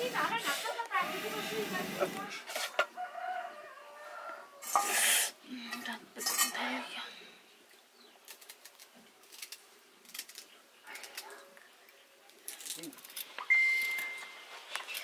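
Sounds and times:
metal pots and dishes clattering: 5.7s - 6.7s.

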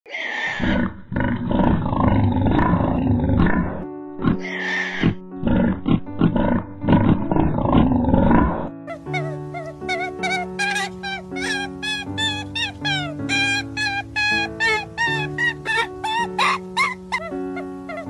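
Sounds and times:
pig squeals: 0.1s - 0.9s, 3.4s - 5.2s, 7.1s - 18.0s
pigs grunting: 0.1s - 9.3s
background music with held notes: 2.9s - 18.0s.

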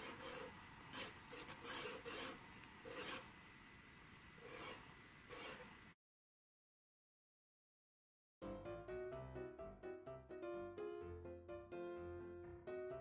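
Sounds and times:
pencil scratching on paper: 0.0s - 3.3s, 4.4s - 5.7s.

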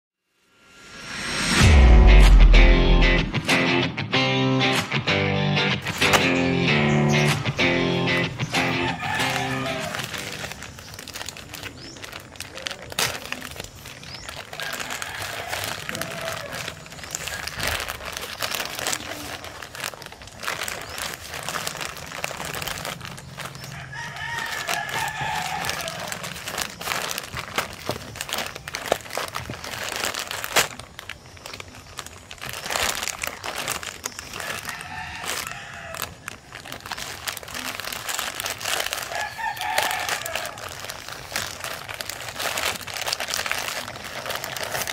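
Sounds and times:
plastic mailer crinkling and tearing: 5.8s - 6.4s, 7.1s - 44.9s
rooster crowing: 8.5s - 10.6s, 14.5s - 17.6s, 23.6s - 26.4s, 34.4s - 36.3s, 39.1s - 40.9s.

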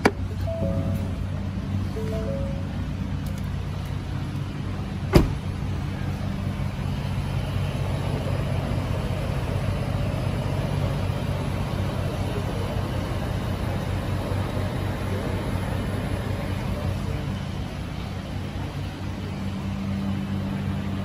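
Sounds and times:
truck engine idling: 0.0s - 21.0s
truck door shutting: 5.1s - 5.6s.

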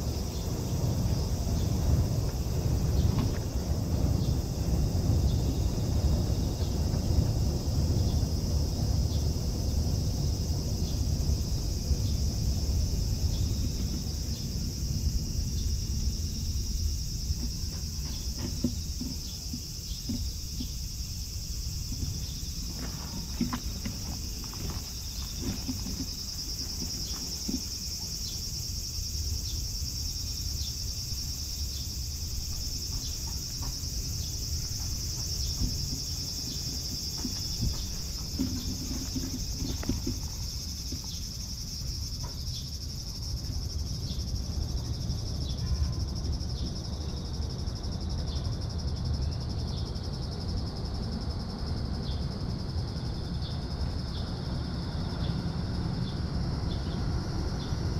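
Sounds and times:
insects chirring: 0.0s - 57.9s
faint rustles and taps: 17.4s - 20.9s, 21.9s - 28.1s, 34.6s - 41.2s.

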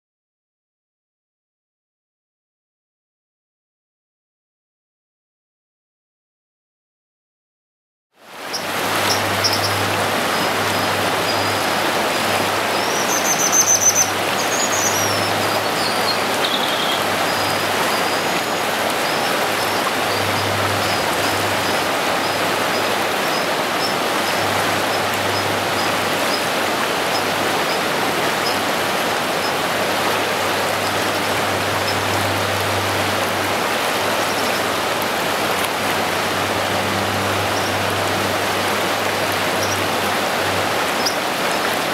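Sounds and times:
fast river water rushing: 8.2s - 41.9s.

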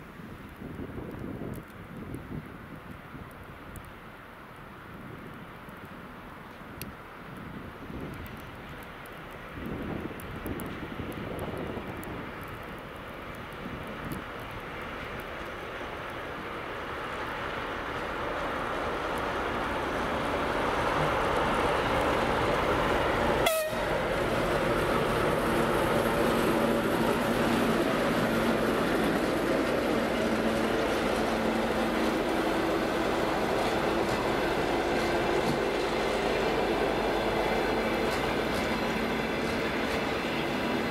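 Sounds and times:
train wheels rumbling on rails: 6.0s - 40.9s
diesel locomotive engine passing: 8.4s - 40.9s.

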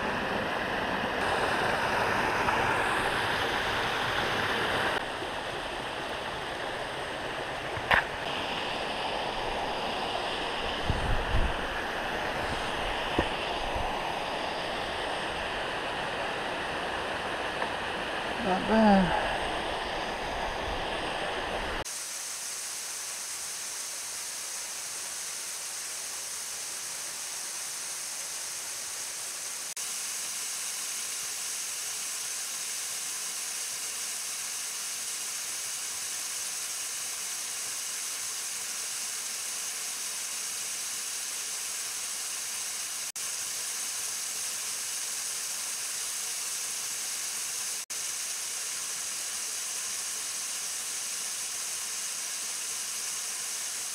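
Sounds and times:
waterfall rushing into pool: 0.0s - 53.9s.

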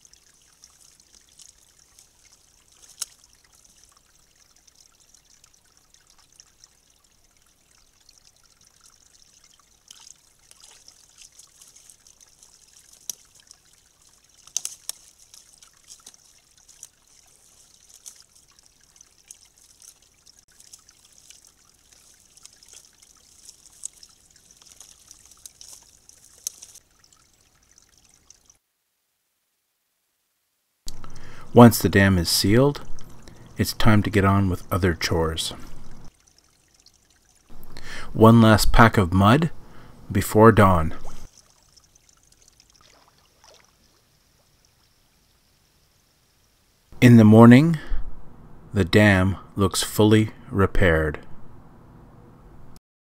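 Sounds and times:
sticks and mud rustling: 0.0s - 4.3s, 9.6s - 28.5s
water trickling: 0.0s - 28.6s, 30.9s - 47.0s.

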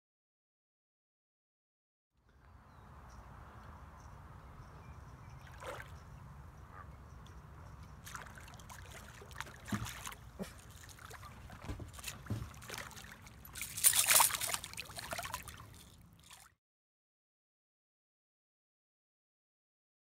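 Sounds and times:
fish splashing in water: 5.4s - 6.0s, 8.0s - 16.5s.

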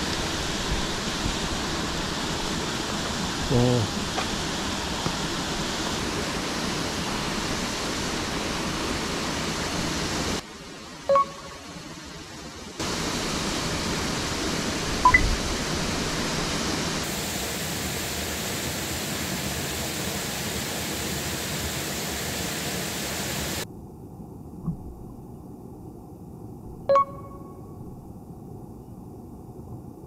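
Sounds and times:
water rushing over a weir: 0.0s - 23.6s
short ding-like tone: 11.1s - 11.6s, 26.9s - 27.7s.

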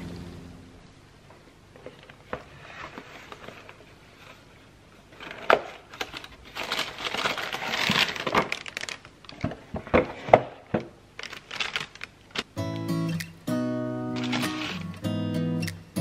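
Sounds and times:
cardboard box crinkling: 5.1s - 10.3s, 11.2s - 12.4s, 14.2s - 14.9s.

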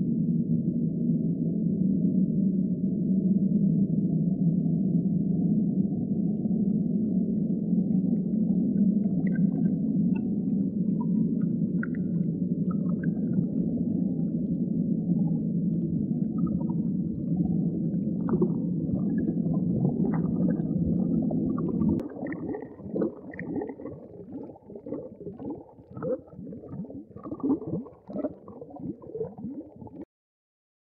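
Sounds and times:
muffled low rumbling drone: 0.0s - 30.0s
bubbling gurgling pulses: 6.9s - 30.1s.

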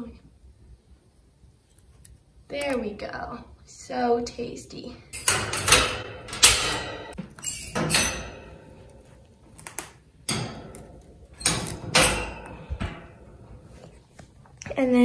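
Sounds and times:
sharp knocks and rattles: 5.2s - 9.2s, 10.2s - 13.9s.

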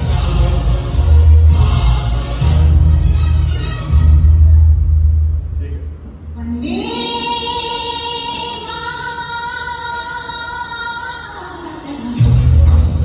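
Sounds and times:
heavy bass beat: 12.2s - 13.0s.

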